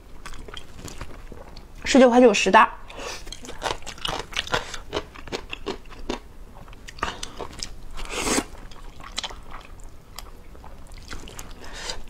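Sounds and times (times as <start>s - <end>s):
wet chewing with mouth clicks: 2.9s - 12.0s
slurping noodles: 8.0s - 9.3s.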